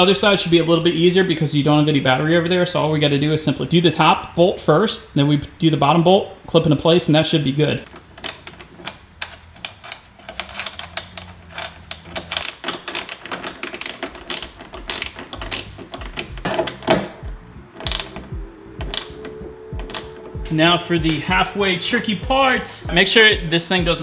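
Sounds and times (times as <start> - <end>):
hand ratchet clicking: 7.8 - 20.5.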